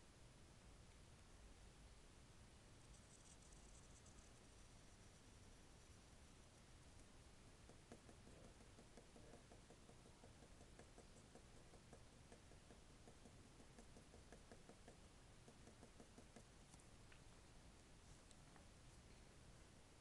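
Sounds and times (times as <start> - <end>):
light rapid ticking: 6.9 - 17.2.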